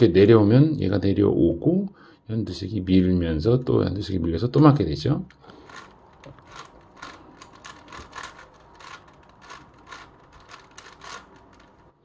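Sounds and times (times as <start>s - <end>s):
twisty puzzle clicking as turned: 5.3s - 12.0s.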